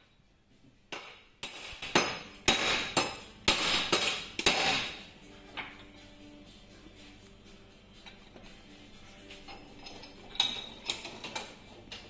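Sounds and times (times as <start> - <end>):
hammer striking metal: 0.9 - 5.7.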